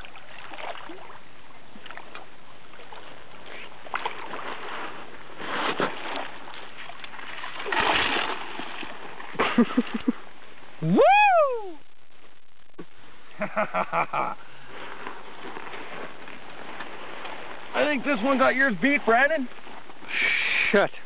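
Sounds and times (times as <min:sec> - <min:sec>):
water splashing: 0:00.0 - 0:13.4.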